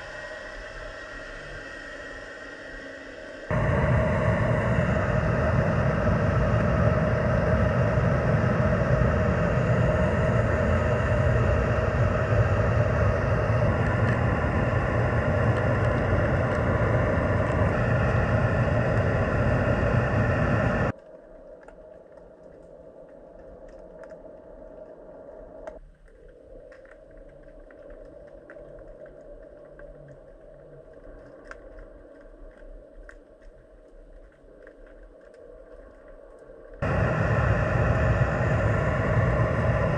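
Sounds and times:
faint underwater rumble: 0.0 - 39.9
loud mechanical hum: 3.5 - 20.9, 36.8 - 39.9
small ticks: 21.0 - 36.8.

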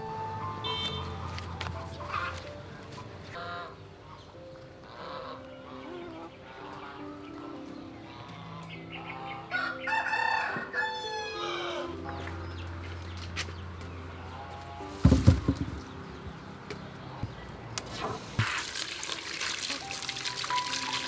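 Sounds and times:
rooster crowing: 9.5 - 12.0.

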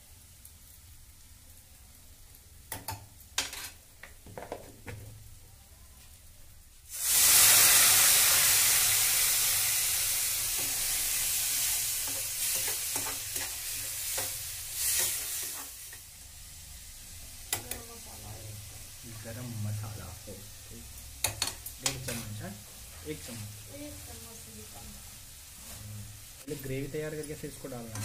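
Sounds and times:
water hissing in hot pan: 0.0 - 28.0
spatula scraping pan: 3.4 - 3.8, 27.8 - 28.0
spatula clacks: 12.0 - 15.7.

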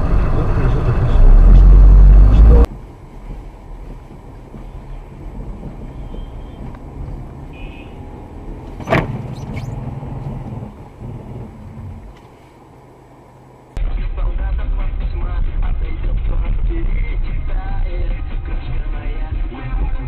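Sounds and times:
loud rumble: 0.0 - 2.7
car engine and road hum: 0.0 - 13.9.

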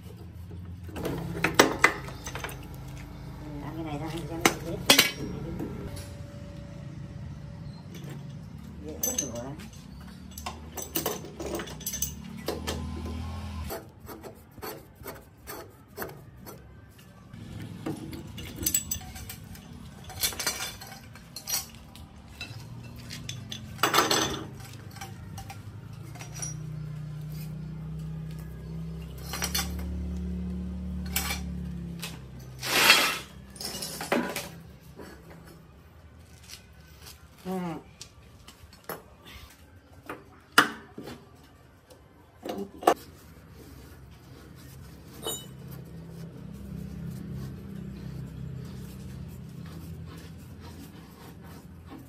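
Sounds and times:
metal tools clanking on compressor: 0.9 - 6.3, 7.6 - 13.2, 17.8 - 30.2, 30.9 - 35.7, 45.0 - 46.0
harsh metal scrapes: 30.9 - 33.6.

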